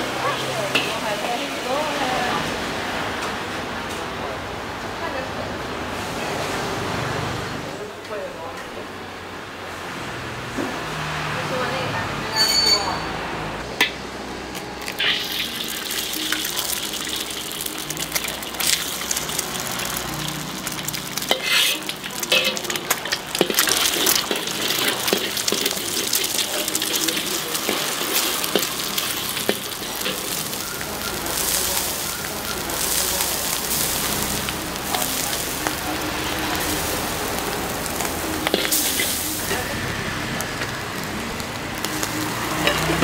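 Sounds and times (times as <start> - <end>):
metal spatula scraping wok: 12.3 - 13.1, 14.9 - 15.6, 18.7 - 39.8
egg sizzling in oil: 14.8 - 43.0.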